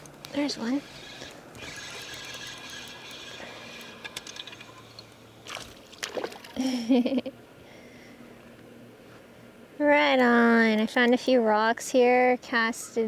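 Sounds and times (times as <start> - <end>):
fishing reel whining: 0.4 - 5.1
fish splashing at surface: 5.4 - 6.6.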